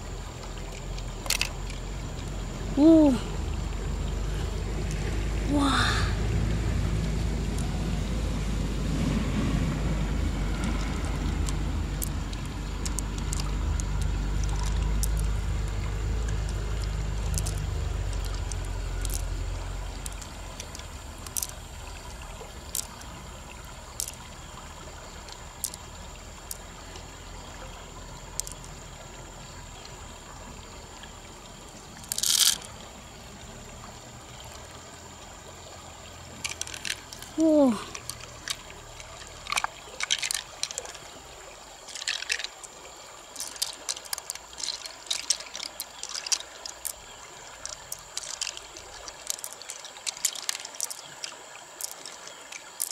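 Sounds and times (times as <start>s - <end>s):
low rumble: 0.0s - 25.0s
river water running: 0.0s - 52.9s
rustle: 0.0s - 52.9s
pearls clicking on shell: 0.4s - 2.3s, 10.6s - 23.1s, 23.9s - 24.3s, 25.3s - 26.7s, 28.3s - 28.7s, 32.0s - 32.7s, 36.4s - 41.1s, 41.8s - 42.7s, 43.3s - 52.9s.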